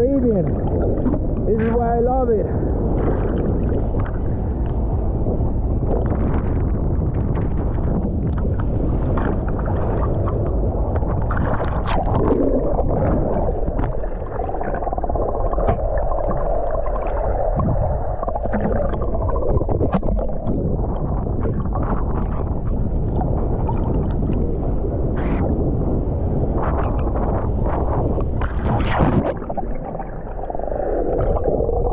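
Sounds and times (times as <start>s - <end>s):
sea water sloshing and splashing: 0.0s - 1.8s, 2.5s - 31.9s
wind buffeting microphone: 0.0s - 31.9s.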